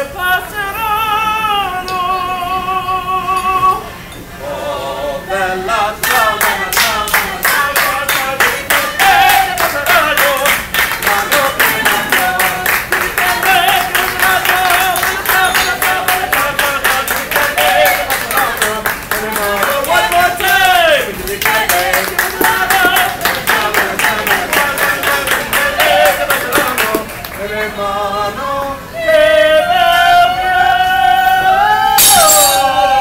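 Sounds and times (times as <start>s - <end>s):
people singing opera unaccompanied: 4.4s - 33.0s
hand-clapping in time: 21.3s - 27.4s.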